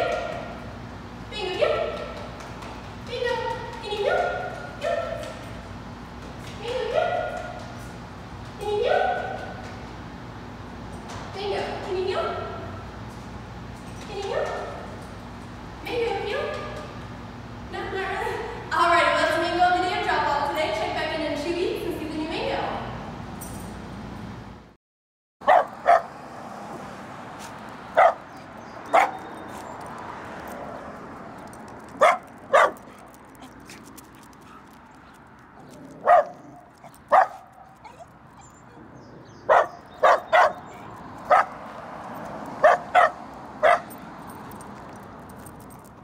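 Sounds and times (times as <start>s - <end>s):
dog barking: 25.4s - 26.1s, 28.0s - 28.3s, 28.9s - 29.3s, 32.0s - 33.5s, 35.9s - 38.8s, 39.4s - 41.6s, 42.6s - 43.9s.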